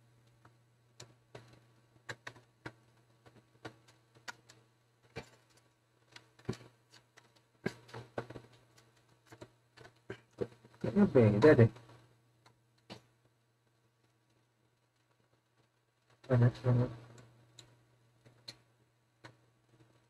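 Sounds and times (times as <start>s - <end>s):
faint low hum: 0.0s - 20.0s.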